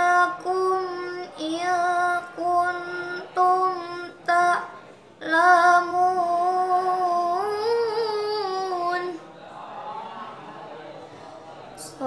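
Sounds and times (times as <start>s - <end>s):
girl reciting melodically: 0.0s - 9.3s, 11.8s - 12.0s.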